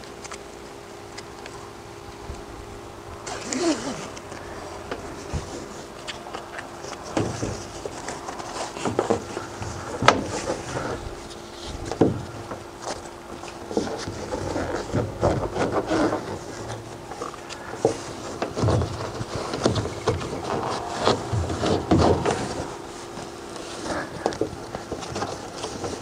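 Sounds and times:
strap webbing rustling and sliding: 3.2s - 12.2s.

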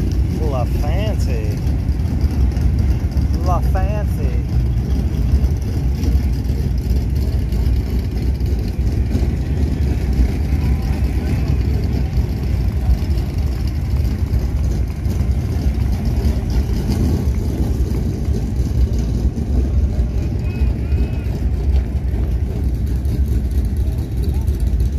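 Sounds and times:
car engines rumbling: 0.0s - 24.9s.

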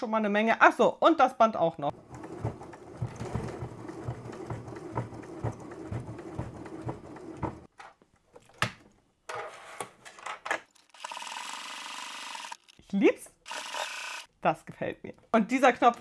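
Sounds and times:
sewing machine stitching: 1.9s - 7.7s, 11.0s - 12.6s, 13.5s - 14.3s.

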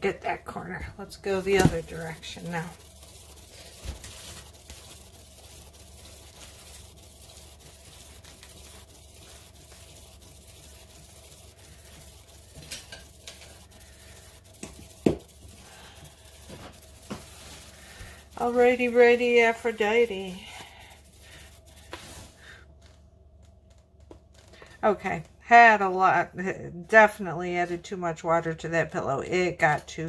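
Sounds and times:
spinner whirring: 1.2s - 21.8s.

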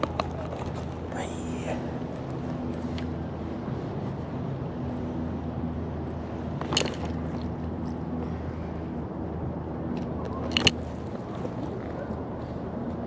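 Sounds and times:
low mechanical city hum: 0.0s - 13.0s.

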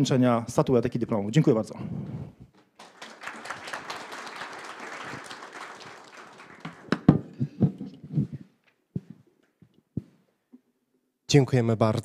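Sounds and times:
audience applauding: 2.6s - 7.6s.

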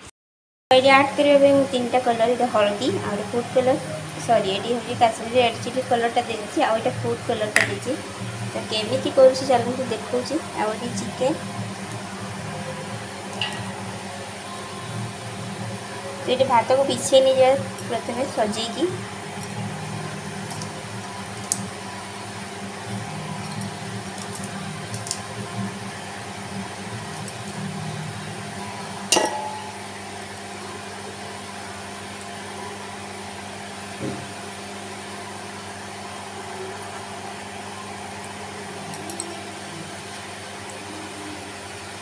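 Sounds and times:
steady hum: 0.7s - 42.0s
utensil clinking on metal pot: 29.1s - 29.9s.

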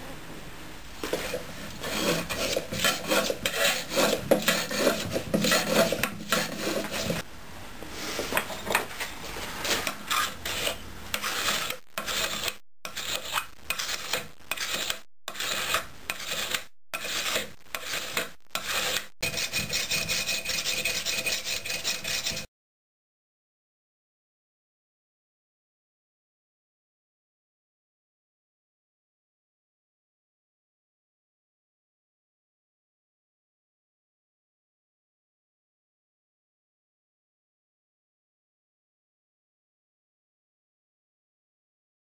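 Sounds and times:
hand scraper shaving bamboo: 1.1s - 7.2s, 9.6s - 22.5s.

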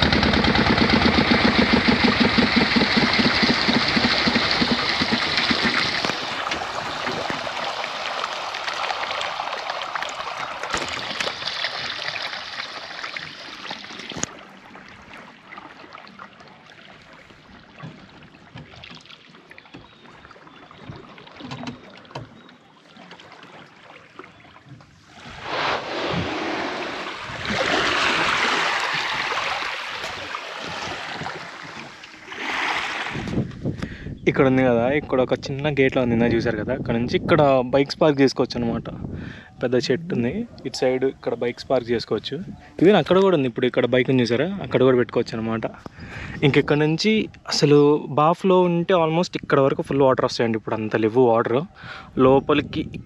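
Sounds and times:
boat engine running: 0.0s - 8.1s
water lapping against hull: 0.0s - 34.2s, 40.3s - 47.9s
wind: 0.0s - 53.0s.

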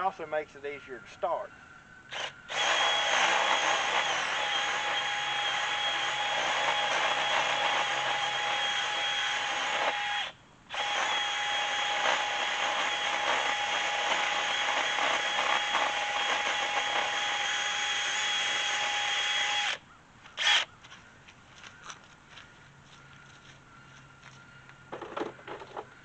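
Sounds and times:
power drill drilling into wood: 2.1s - 19.8s, 20.4s - 20.7s.

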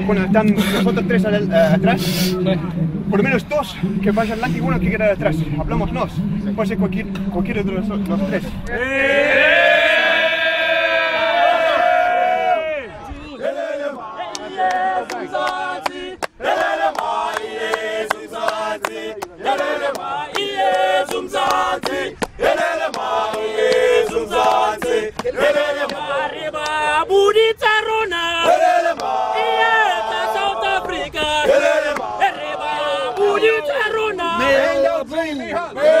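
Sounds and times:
men chanting in unison: 8.6s - 36.0s
hands clapping: 14.3s - 26.8s, 28.9s - 29.2s.

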